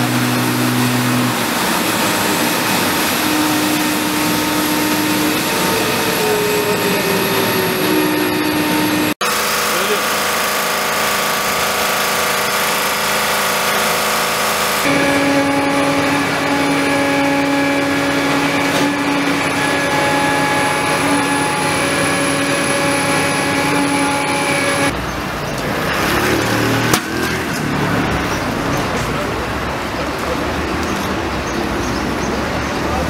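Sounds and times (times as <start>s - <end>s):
steady held tones: 0.0s - 10.0s, 11.0s - 25.0s
street noise: 0.0s - 33.0s
worksite machinery drone: 0.0s - 33.0s.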